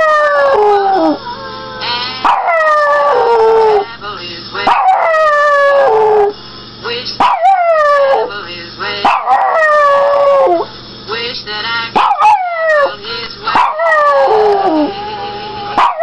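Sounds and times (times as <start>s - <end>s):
dog howling: 0.0s - 3.9s, 4.7s - 6.3s, 7.2s - 8.3s, 9.1s - 10.7s, 12.0s - 16.0s.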